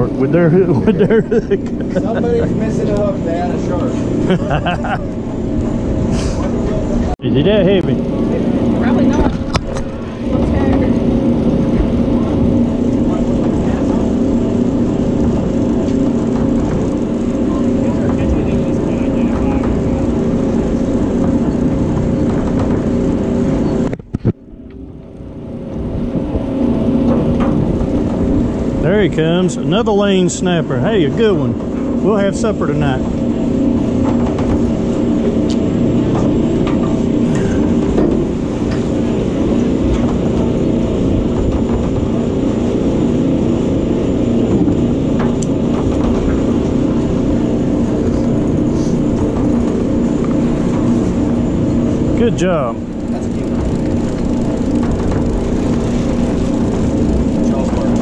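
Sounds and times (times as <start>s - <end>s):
engine hum: 0.0s - 58.0s.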